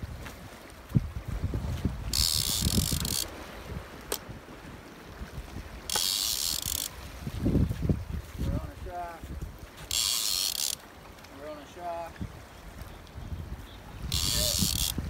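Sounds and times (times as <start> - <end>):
wind rumbling on microphone: 0.0 - 11.2, 12.0 - 15.0
fishing reel ratchet buzzing: 2.1 - 3.3, 5.9 - 7.0, 9.8 - 10.8, 14.1 - 15.0
sharp clicks: 14.2 - 15.0.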